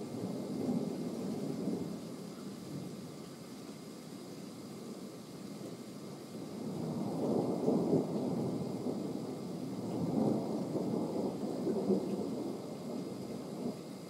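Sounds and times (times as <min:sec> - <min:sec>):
thunder rumbling: 0:06.5 - 0:14.0.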